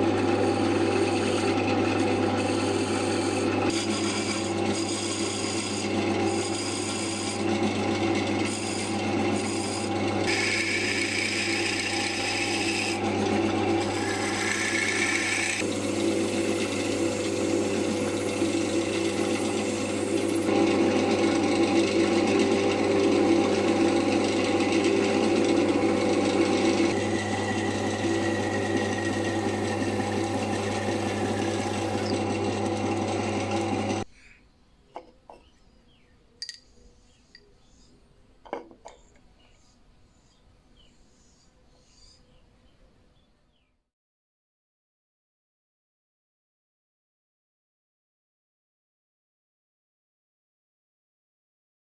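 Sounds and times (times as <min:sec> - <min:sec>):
sandpaper rubbing spinning wood: 0:00.0 - 0:34.0
turning tool scraping wood: 0:00.0 - 0:34.1
wood lathe humming: 0:00.0 - 0:34.1.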